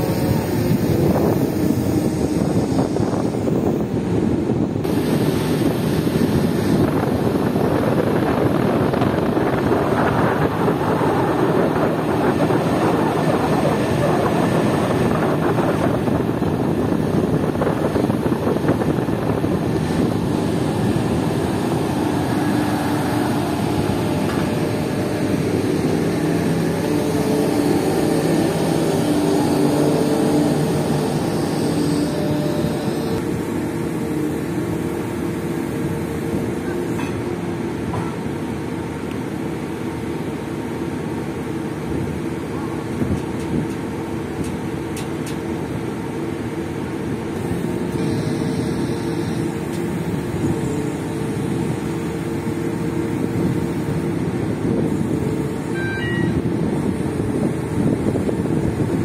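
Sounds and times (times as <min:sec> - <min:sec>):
heavy machinery diesel drone: 0:00.0 - 0:59.0
low engine hum: 0:00.0 - 0:59.0.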